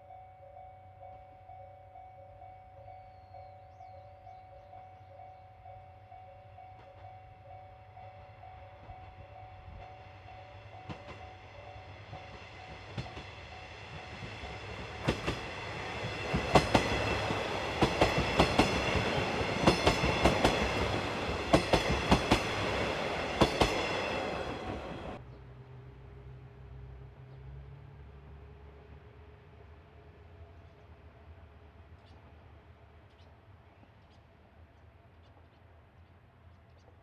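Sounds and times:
diesel railcar passing: 0:00.0 - 0:36.9
wheels clacking over rail joints: 0:10.8 - 0:25.2.

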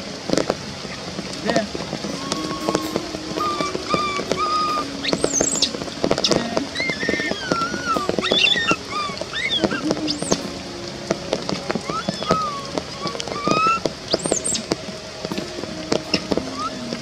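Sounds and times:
baby monkey whimpering calls: 0:02.1 - 0:10.5, 0:11.8 - 0:14.6
baby monkey shrill squeals: 0:02.2 - 0:05.7, 0:06.7 - 0:10.4, 0:11.8 - 0:14.6.

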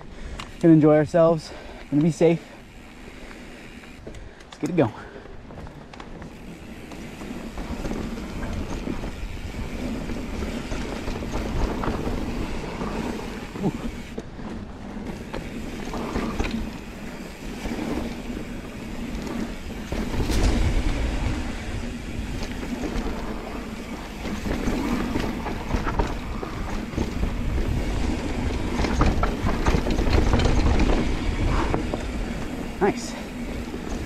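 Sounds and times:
bike rattling and clicking: 0:00.0 - 0:34.0
tyres rumbling over dirt: 0:05.5 - 0:34.0
wind buffeting microphone: 0:06.4 - 0:14.2, 0:15.0 - 0:34.0.

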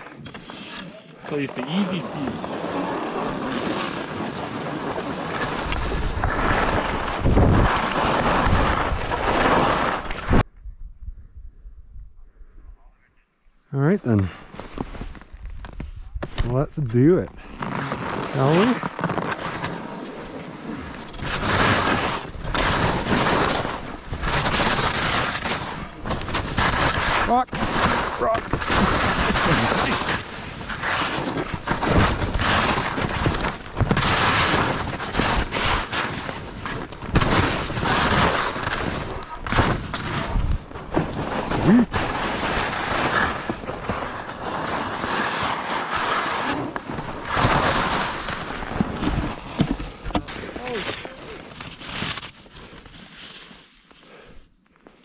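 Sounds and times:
skis scraping on snow: 0:00.0 - 0:10.4, 0:14.1 - 0:55.0
wind on microphone: 0:10.2 - 0:13.0.

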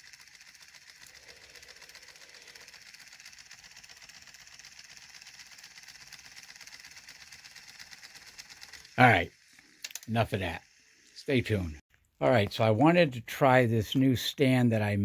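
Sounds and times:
motor rapid steady pulsing: 0:00.0 - 0:11.8.

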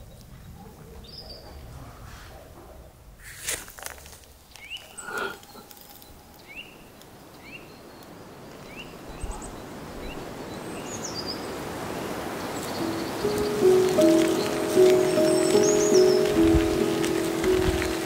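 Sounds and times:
outdoor hiss: 0:03.0 - 0:18.0.

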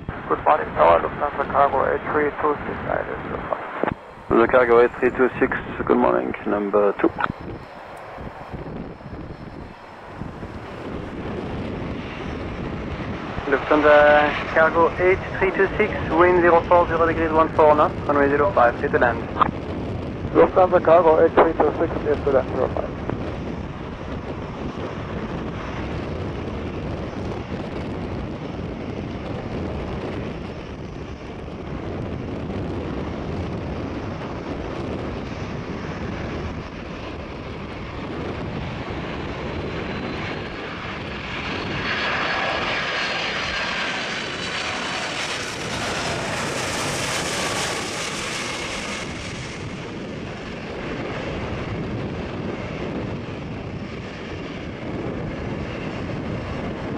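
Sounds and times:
jet engines rumbling and whining: 0:00.0 - 0:56.9.

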